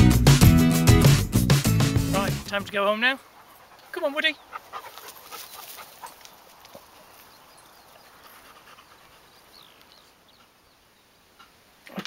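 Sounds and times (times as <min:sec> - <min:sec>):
dog panting: 0:03.0 - 0:10.6
light footsteps: 0:03.2 - 0:10.6.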